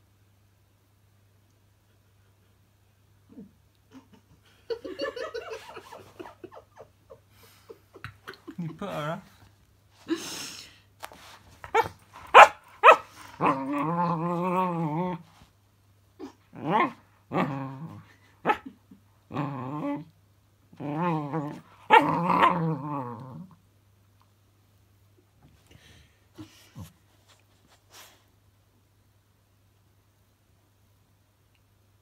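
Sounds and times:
puppy barking: 0:11.7 - 0:13.6
puppy howling and grumbling: 0:13.3 - 0:15.3, 0:16.2 - 0:18.7, 0:19.3 - 0:20.1, 0:20.7 - 0:23.6.

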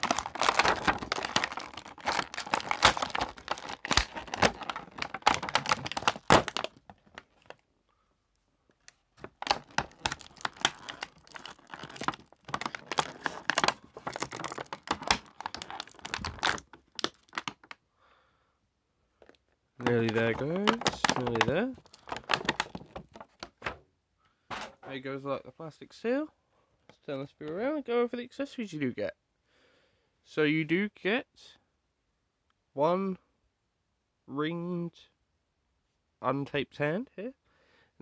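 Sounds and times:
plastic packaging crinkling: 0:00.0 - 0:07.6, 0:08.9 - 0:17.8, 0:19.2 - 0:23.8.

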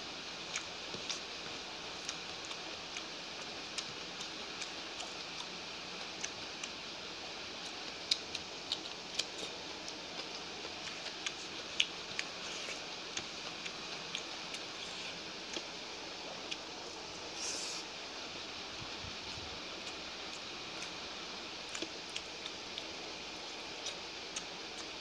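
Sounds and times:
steady hiss: 0:00.0 - 0:25.0
mouth chewing: 0:07.7 - 0:15.7.

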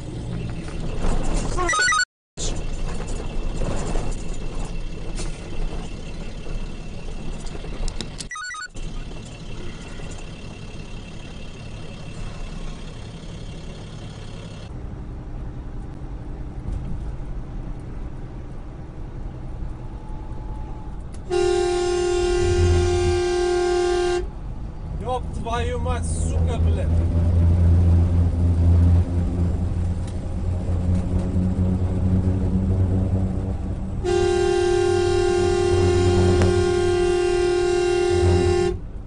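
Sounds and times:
truck engine and road noise: 0:00.0 - 0:39.0
truck horn held: 0:21.2 - 0:24.3, 0:34.0 - 0:38.9.

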